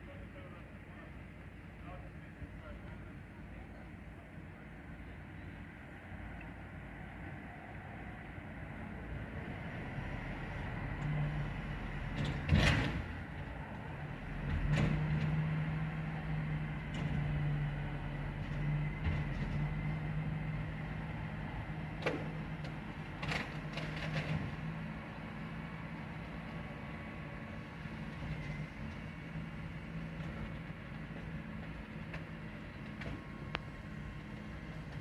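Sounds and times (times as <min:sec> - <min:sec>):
garbage truck engine hum: 0:08.6 - 0:35.0.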